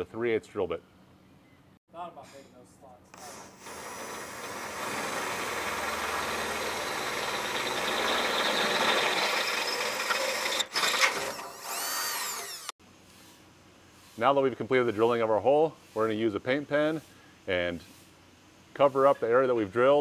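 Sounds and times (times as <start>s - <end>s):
drill grinding through metal: 3.2s - 12.8s
drill motor whining: 3.2s - 12.8s.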